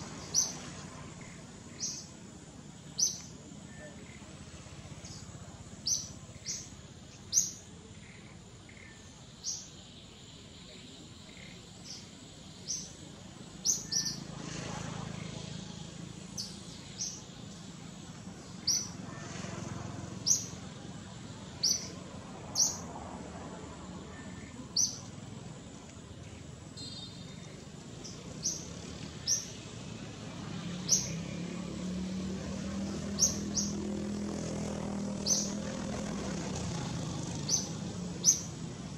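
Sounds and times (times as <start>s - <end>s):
outdoor background noise: 0.0s - 38.9s
bird chirping: 0.1s - 4.3s, 4.9s - 14.3s, 16.3s - 17.8s, 18.4s - 19.0s, 20.2s - 20.6s, 21.6s - 22.9s, 26.2s - 29.7s, 30.6s - 31.4s, 32.8s - 34.2s, 35.2s - 35.7s, 37.2s - 38.6s.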